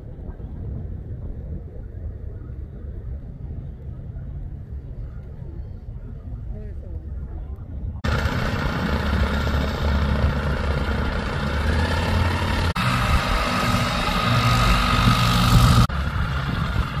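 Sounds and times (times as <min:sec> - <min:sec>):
light aircraft engine idling: 0:08.0 - 0:17.0.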